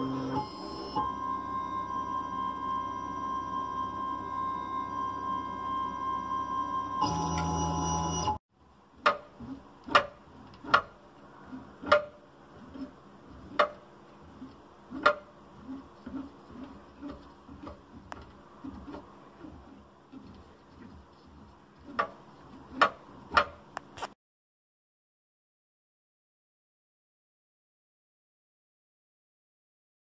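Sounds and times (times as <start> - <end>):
stepper motor whining: 0.0 - 8.4.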